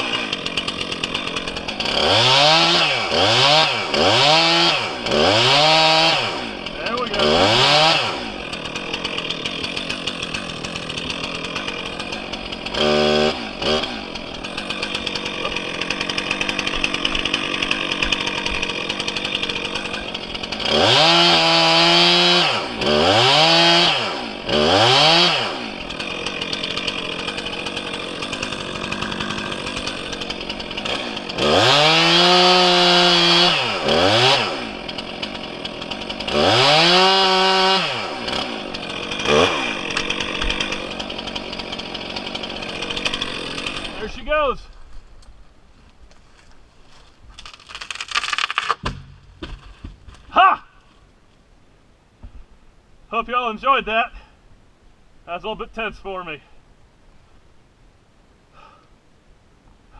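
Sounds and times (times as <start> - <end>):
chainsaw idling and revving: 0.0 - 44.5, 46.9 - 50.2.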